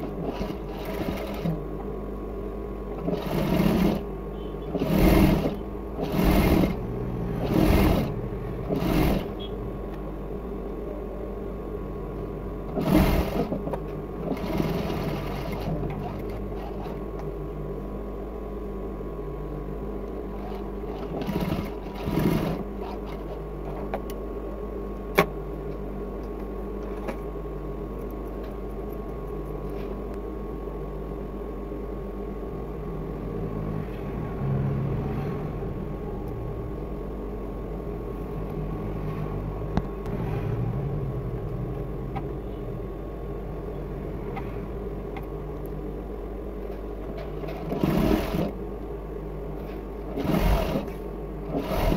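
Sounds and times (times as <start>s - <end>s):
sewing machine stitching: 0.0s - 1.6s, 3.0s - 4.1s, 4.7s - 6.8s, 7.4s - 9.5s, 12.7s - 17.0s, 20.3s - 23.4s, 47.2s - 48.6s, 50.0s - 51.9s.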